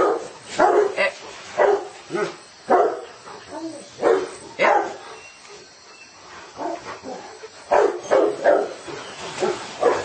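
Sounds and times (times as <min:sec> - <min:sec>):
dog barking: 0:00.0 - 0:03.1, 0:04.0 - 0:05.0, 0:07.7 - 0:08.8, 0:09.4 - 0:10.0.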